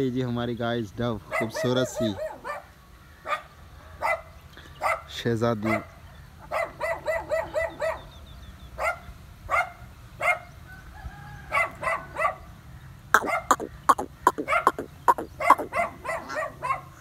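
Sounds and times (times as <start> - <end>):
ducks quacking: 13.2 - 16.5.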